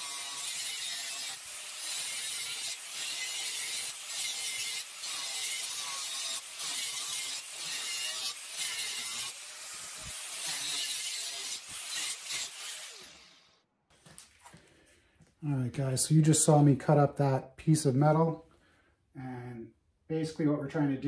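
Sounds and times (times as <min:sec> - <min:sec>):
angle grinder cutting steel: 0:00.0 - 0:13.6.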